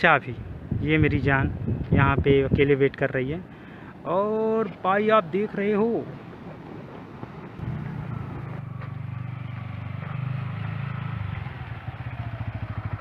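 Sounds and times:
motorcycle engine starting and idling: 7.6 - 13.0.

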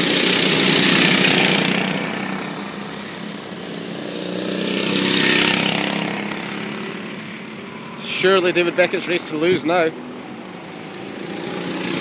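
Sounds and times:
kart engines passing by: 0.0 - 12.0.

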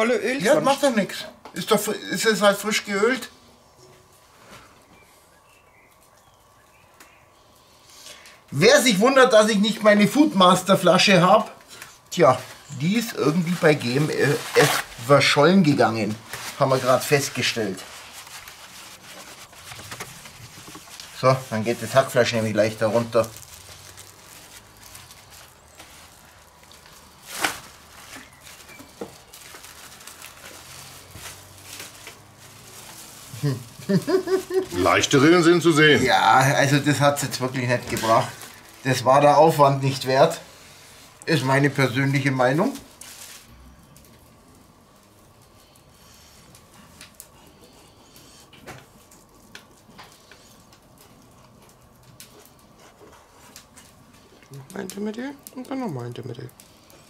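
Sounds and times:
faint steady hum: 0.0 - 57.0
cling film rustling: 8.1 - 45.7.

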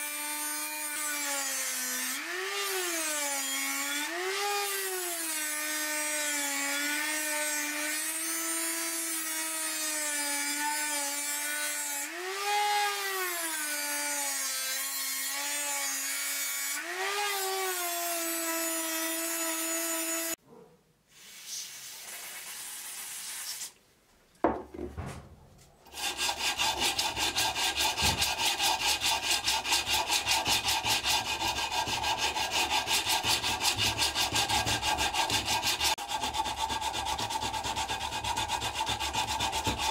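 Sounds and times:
rotary tool grinding metal: 25.9 - 39.9
sandpaper rubbing on steel: 26.0 - 39.9.

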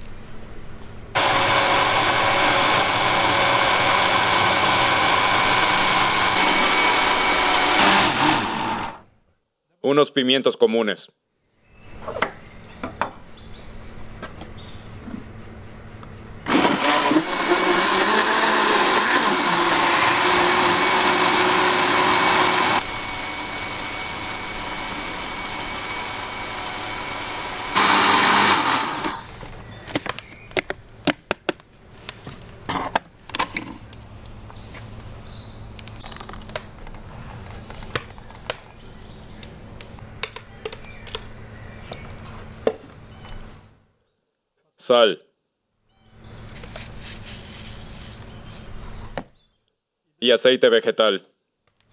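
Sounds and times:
electric blender running: 1.2 - 9.0, 16.4 - 29.3.

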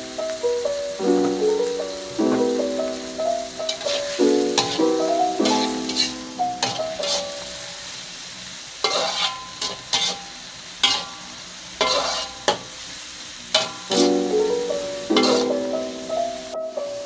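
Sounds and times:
vegetables sizzling in oil: 0.0 - 17.0
metal spatula scraping wok: 3.6 - 8.0, 8.8 - 12.8, 13.5 - 14.4, 15.0 - 16.0.

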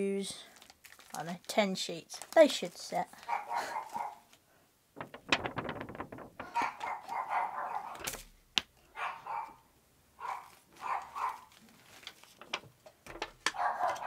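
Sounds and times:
dogs barking: 3.2 - 4.3, 6.4 - 8.0, 8.9 - 11.5, 13.5 - 14.0.

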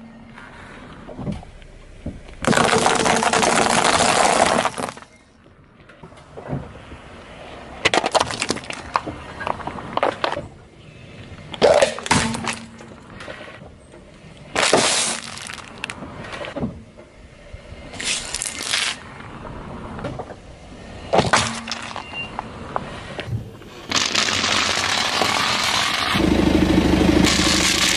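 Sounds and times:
sharp cracks under tyre: 2.2 - 5.2, 7.8 - 10.6, 11.5 - 13.4, 14.5 - 16.6, 18.0 - 19.3, 21.1 - 23.3, 23.9 - 26.2, 27.2 - 27.9
tyre crunching dry pasta: 23.9 - 26.1.

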